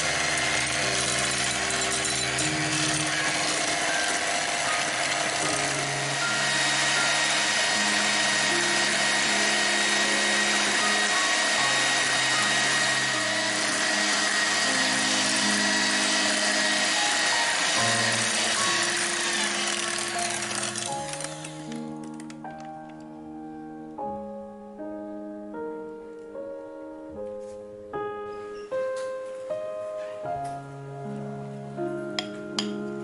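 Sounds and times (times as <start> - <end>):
electric hand mixer whining: 0.0 - 22.4
background music: 0.0 - 33.0.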